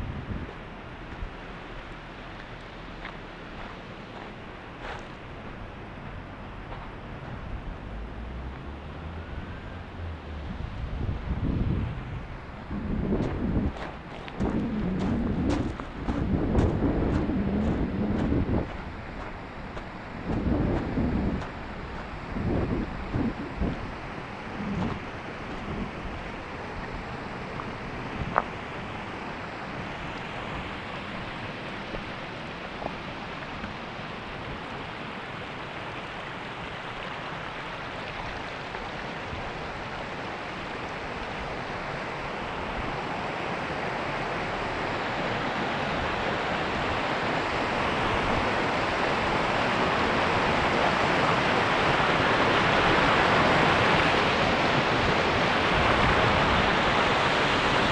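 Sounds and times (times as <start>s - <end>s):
river roaring through gorge: 0.0s - 57.9s.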